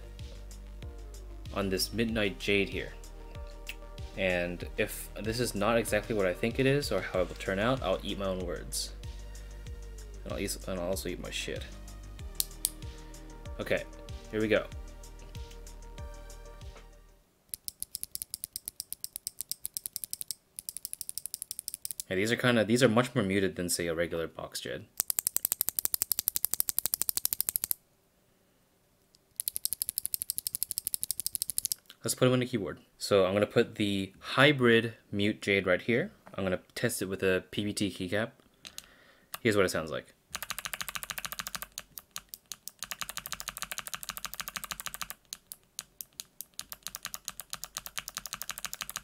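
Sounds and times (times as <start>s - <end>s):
fast typing on mechanical keyboard: 25.0s - 27.8s, 29.4s - 31.8s, 40.4s - 49.0s.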